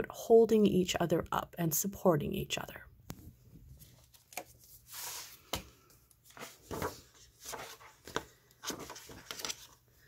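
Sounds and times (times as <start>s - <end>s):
paper pages rustling: 3.7s - 10.0s.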